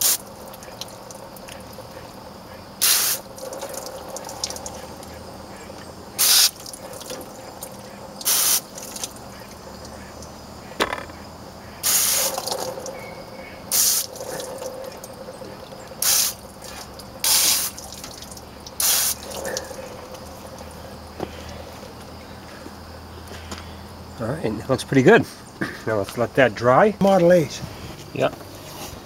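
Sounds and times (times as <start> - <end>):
hose nozzle water spurts: 0.0 - 2.2, 2.8 - 10.3, 11.8 - 13.0, 13.7 - 20.8.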